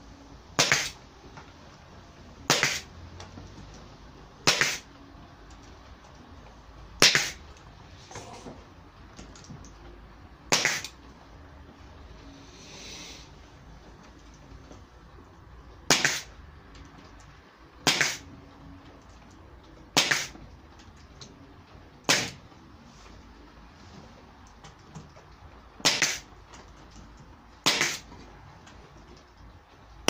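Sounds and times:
pneumatic nail gun firing: 0.6s - 1.0s, 2.5s - 2.9s, 4.4s - 4.9s, 7.0s - 7.4s, 10.5s - 10.9s, 15.9s - 16.3s, 17.8s - 18.2s, 20.0s - 20.4s, 22.1s - 22.4s, 25.8s - 26.2s, 27.6s - 28.1s.

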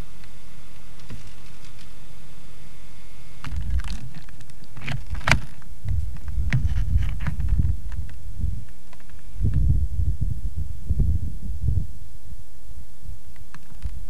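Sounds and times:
background hiss: 0.0s - 14.0s
wind buffeting microphone: 3.4s - 12.1s
camera handling bumps and clicks: 3.5s - 8.2s.

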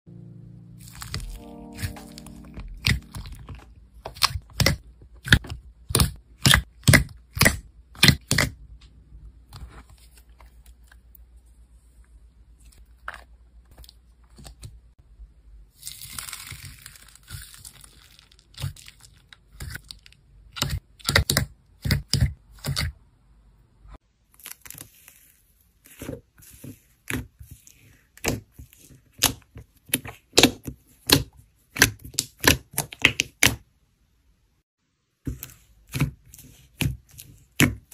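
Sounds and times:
slime popping and crackling: 0.8s - 8.5s.

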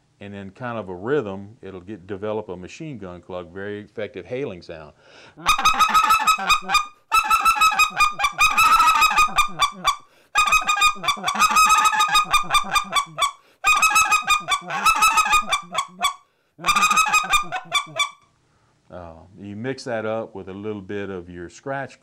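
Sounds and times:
goose call rapid clucks: 5.4s - 18.2s.

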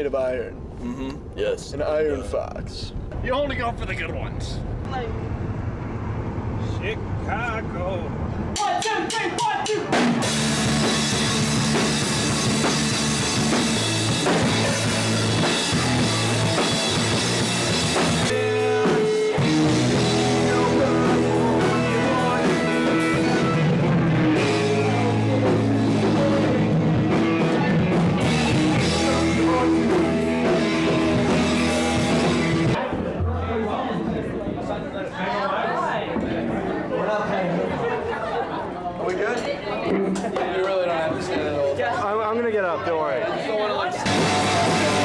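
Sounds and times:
rock band playing live: 8.6s - 32.8s, 44.0s - 45.0s.

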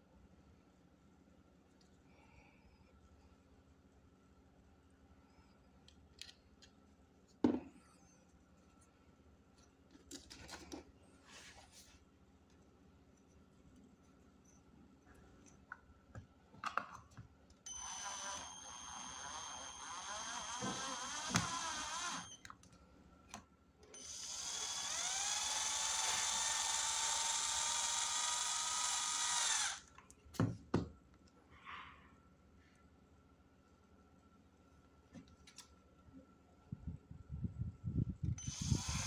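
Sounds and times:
drill driving screws: 17.7s - 22.4s, 23.9s - 29.9s, 38.4s - 39.0s.

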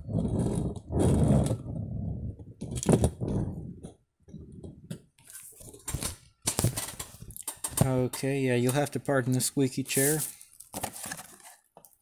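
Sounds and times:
toy truck rolling on desk: 0.0s - 1.8s
toys clicking and knocking: 5.8s - 9.4s.

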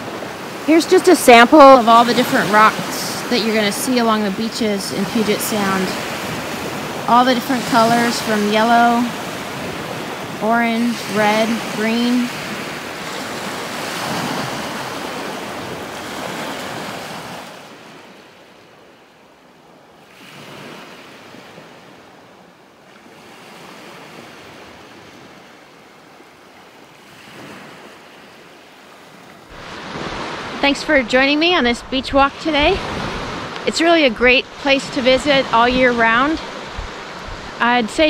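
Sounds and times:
small waves on pebble shore: 0.0s - 38.0s.

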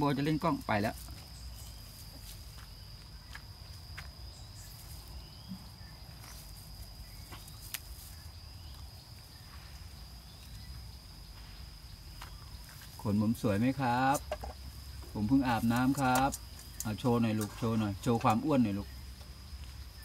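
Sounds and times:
puppies scuffling in grass: 0.0s - 14.2s.

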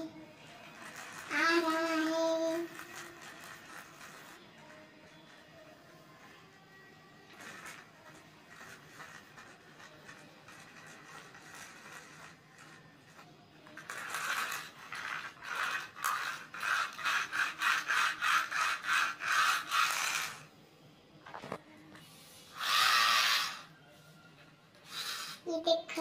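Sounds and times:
plastic toy scraping concrete: 0.0s - 6.4s, 7.3s - 20.5s, 22.2s - 23.7s, 24.8s - 26.0s.

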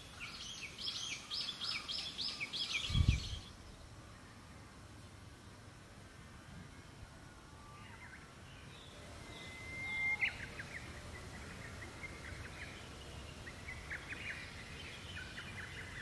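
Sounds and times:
faint outdoor hush: 0.0s - 16.0s
held whistled bird note: 9.0s - 10.9s.

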